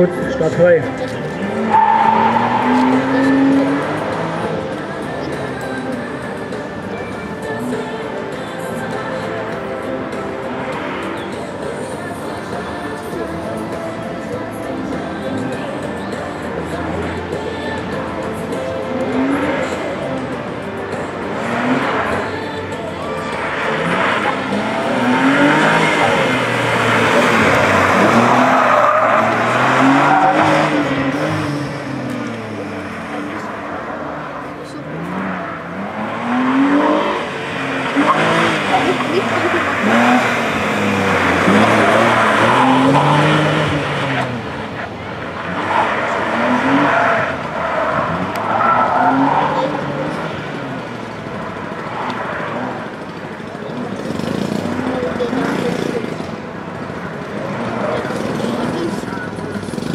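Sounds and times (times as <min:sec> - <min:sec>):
car engine revving: 0:00.0 - 0:59.9
tyres squealing: 0:00.9 - 0:04.6, 0:23.2 - 0:31.6.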